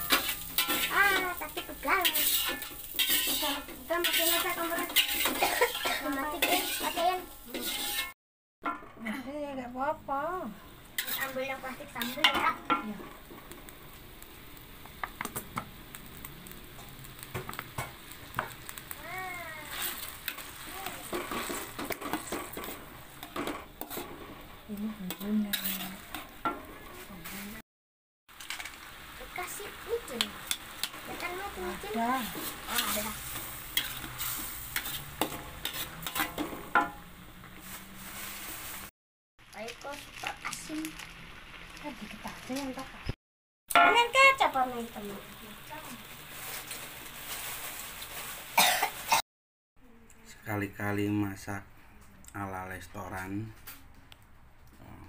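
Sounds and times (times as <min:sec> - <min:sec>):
sauce sizzling: 0:00.0 - 0:08.2, 0:09.6 - 0:27.6, 0:28.3 - 0:49.2
metal spatula scraping a wok: 0:00.0 - 0:08.9, 0:11.0 - 0:13.6, 0:19.6 - 0:27.6, 0:30.2 - 0:38.9, 0:45.8 - 0:49.0.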